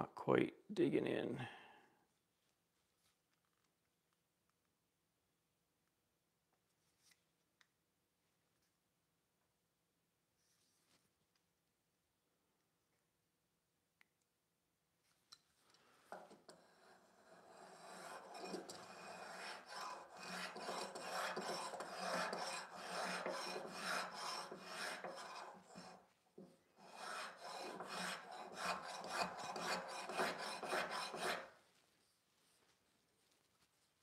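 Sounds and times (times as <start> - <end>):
spokeshave rasping on wood: 16.2 - 26.1, 26.8 - 31.6.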